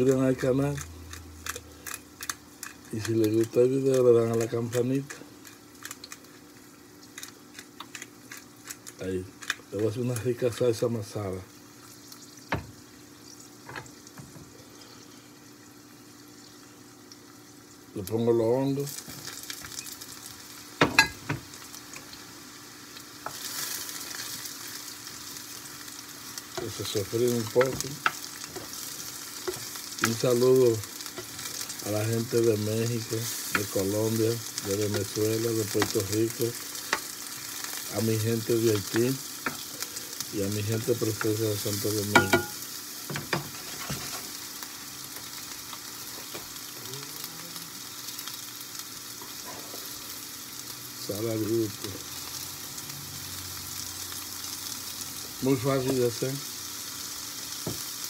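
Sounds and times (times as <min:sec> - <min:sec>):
mushrooms sizzling in a frying pan: 0:00.0 - 0:58.0
spoon knocking against a pan: 0:42.1 - 0:43.5.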